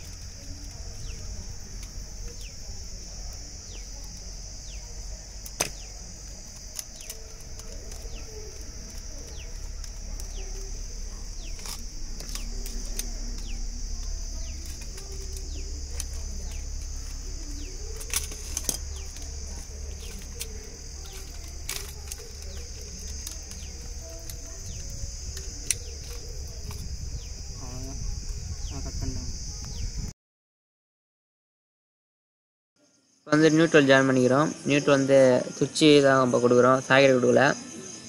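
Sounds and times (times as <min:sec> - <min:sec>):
high-pitched drone: 0:00.0 - 0:30.1.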